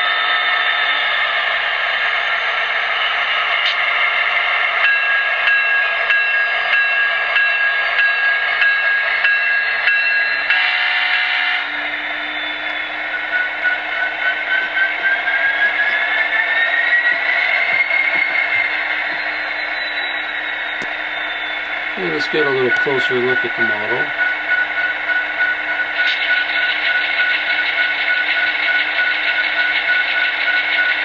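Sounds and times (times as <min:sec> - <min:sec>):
model locomotive diesel sounds: 0:00.0 - 0:31.0
rising whine: 0:10.1 - 0:27.6.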